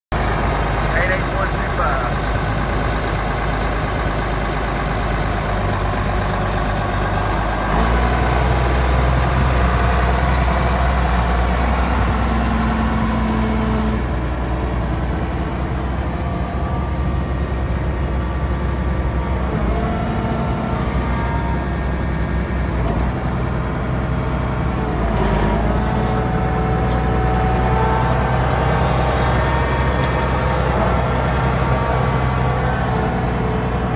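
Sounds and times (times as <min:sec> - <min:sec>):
tractor diesel engine running: 0:00.1 - 0:33.9.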